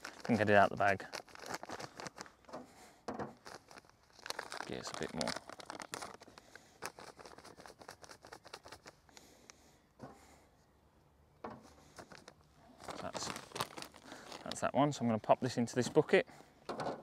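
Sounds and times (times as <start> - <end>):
crumbs pattering into plastic jug: 0.0 - 9.0, 11.6 - 14.7
plastic bag crinkling: 0.0 - 9.3, 11.6 - 14.7.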